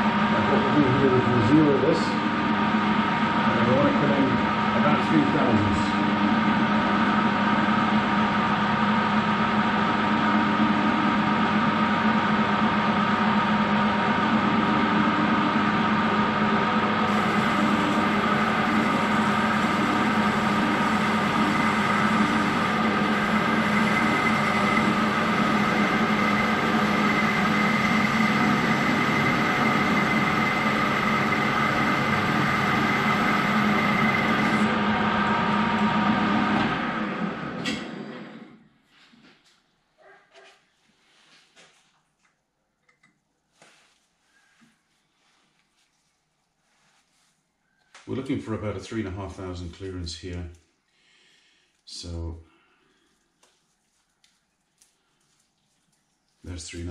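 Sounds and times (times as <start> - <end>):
metal lathe whining: 0.0 - 37.8.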